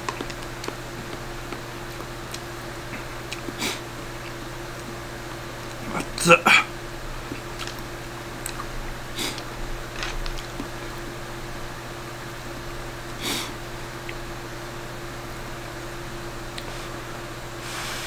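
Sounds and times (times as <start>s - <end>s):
fan hum: 0.0s - 18.0s.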